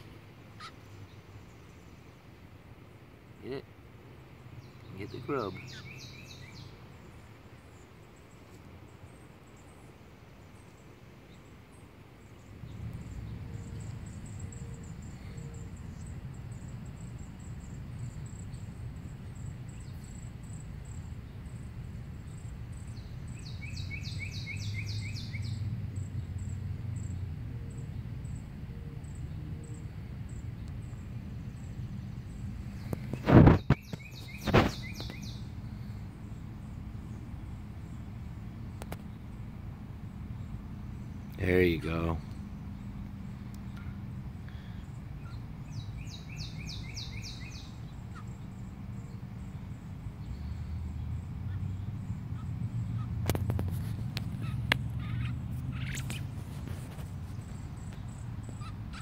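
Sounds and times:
bird falling chirps: 32.8s - 35.4s.

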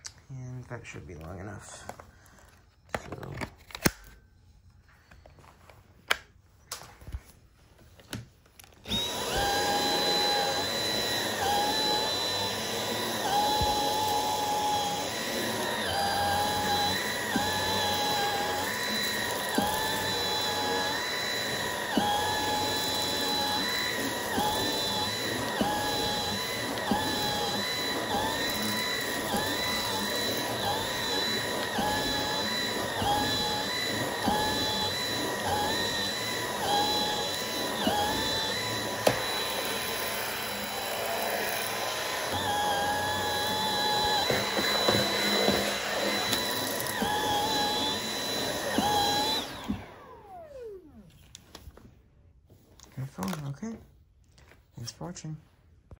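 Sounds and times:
vacuum cleaner motor whining: 7.9s - 51.7s.

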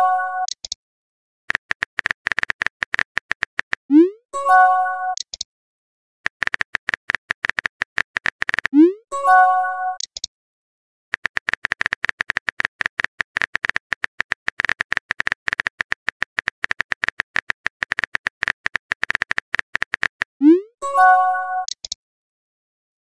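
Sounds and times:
smartphone keyboard clicks: 0.5s - 0.8s, 1.5s - 3.9s, 5.2s - 5.5s, 6.3s - 8.8s, 10.0s - 10.3s, 11.2s - 20.3s, 21.7s - 22.0s.

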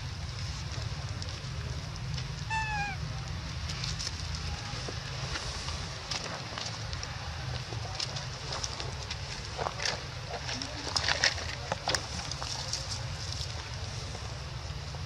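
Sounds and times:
monkey squeak: 2.5s - 3.0s.

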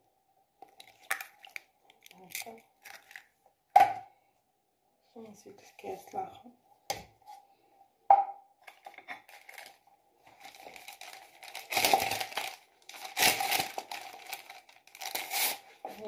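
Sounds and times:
paper crinkling: 0.7s - 3.3s, 8.7s - 16.0s
paper sachets tearing: 2.0s - 3.3s, 9.3s - 15.7s.

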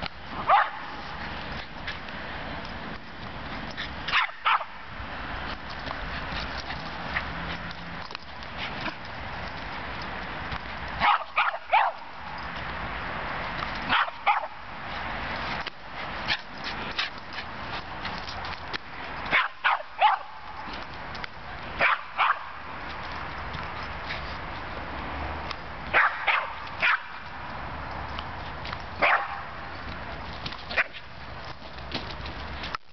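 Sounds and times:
small dog yapping barks: 0.4s - 0.8s, 4.1s - 4.8s, 11.0s - 12.1s, 13.9s - 14.6s, 19.3s - 20.4s, 21.8s - 22.5s, 25.9s - 27.2s, 29.0s - 29.5s.

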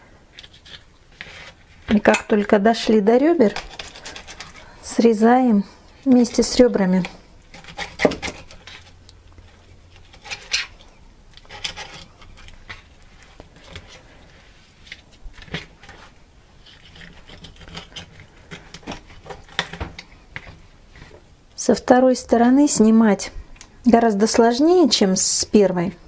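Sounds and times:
knife scraping fish: 0.4s - 1.8s, 3.4s - 4.8s, 7.5s - 12.8s, 16.6s - 21.1s.

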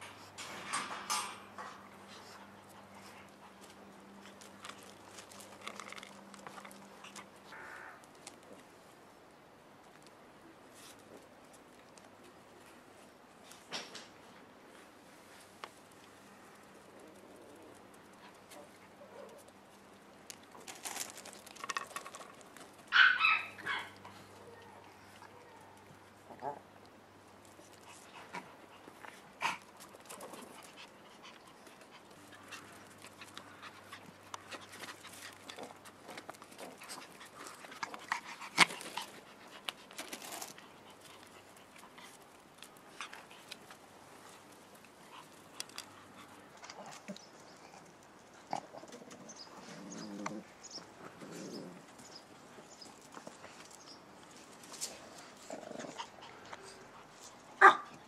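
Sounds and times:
small scuffling noises: 1.4s - 9.0s
puppies yapping: 22.9s - 24.0s.

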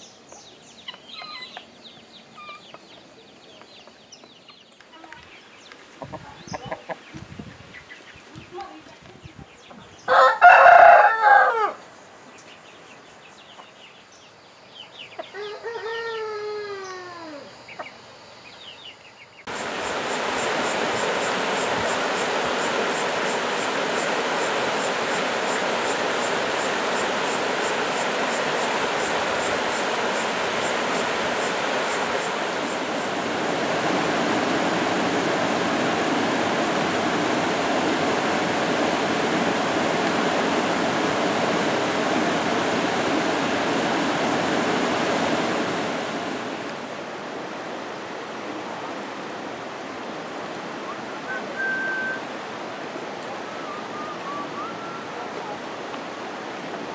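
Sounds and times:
rooster crowing: 10.1s - 11.8s, 15.3s - 17.5s
stream rushing over rocks: 19.5s - 56.9s.

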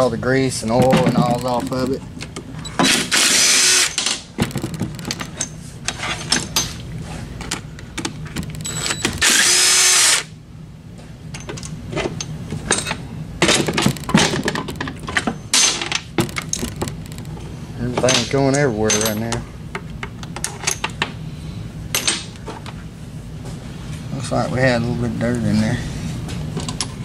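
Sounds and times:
impact driver running: 2.8s - 4.0s, 8.7s - 10.3s
metallic clinks of bolts and tools: 18.0s - 19.4s.

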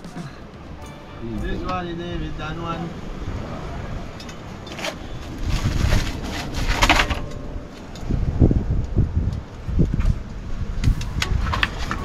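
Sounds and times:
people talking indistinctly: 0.0s - 3.1s
wind rumble on microphone: 0.6s - 12.0s.

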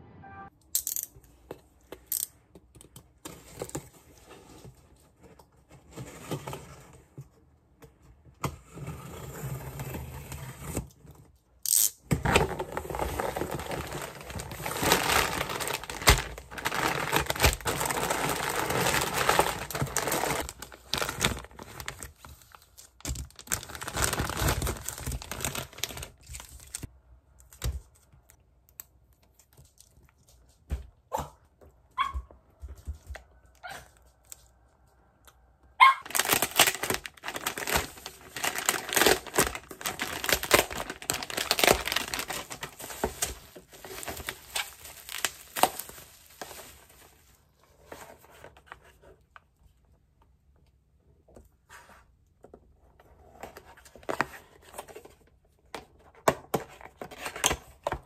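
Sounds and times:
cardboard rustles and clicks: 12.2s - 26.9s
plastic bags crinkling: 12.4s - 26.9s, 35.8s - 47.4s.

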